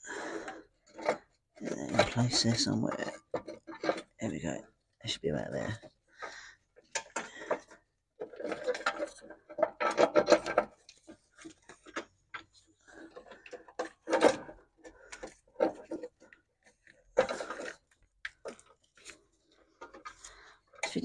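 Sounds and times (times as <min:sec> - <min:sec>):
plastic scraping and knocking on metal: 0:00.3 - 0:04.8, 0:05.5 - 0:21.0.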